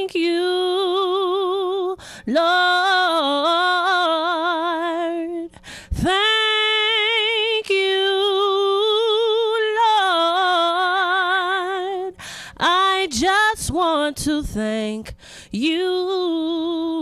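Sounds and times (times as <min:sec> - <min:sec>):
woman singing gospel: 0:00.0 - 0:17.0
short breath: 0:02.0 - 0:02.3, 0:05.5 - 0:06.0, 0:12.2 - 0:12.6, 0:15.1 - 0:15.5.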